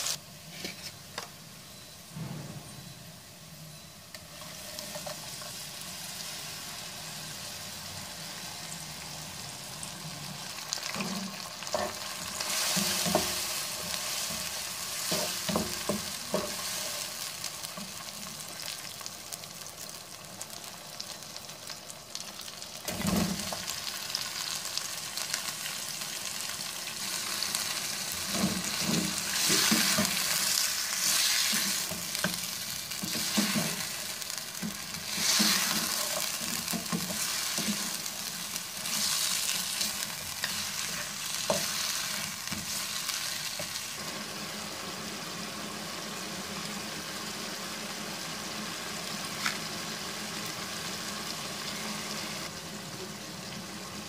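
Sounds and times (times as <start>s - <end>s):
food sizzling in hot oil: 0.0s - 0.8s, 2.7s - 54.0s.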